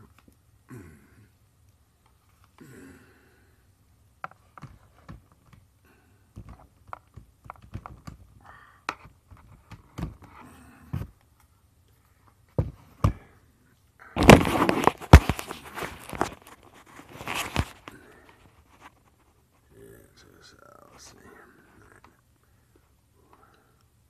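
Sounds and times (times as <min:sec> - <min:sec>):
small clicks and knocks: 0:06.3 - 0:10.4
loud thumps: 0:14.2 - 0:16.3
camera rustling scrape: 0:14.2 - 0:19.7.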